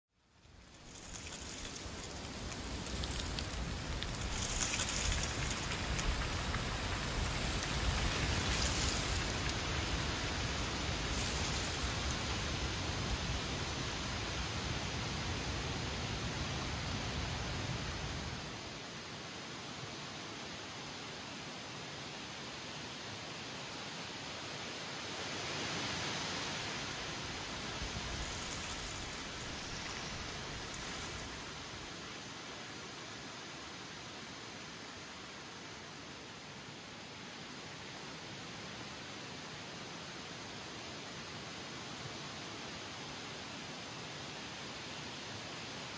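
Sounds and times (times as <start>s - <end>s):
rain on leaves and pavement: 0.3s - 18.6s, 25.0s - 36.8s.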